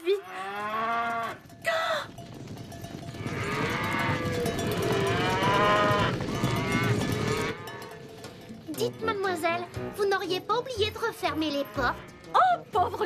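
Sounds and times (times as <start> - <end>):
steady clatter: 1.4 - 9.6
cartoon cows mooing: 11.6 - 12.6.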